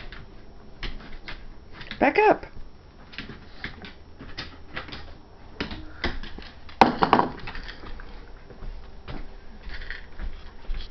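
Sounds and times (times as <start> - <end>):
bowl clattering on floor: 6.8 - 7.8.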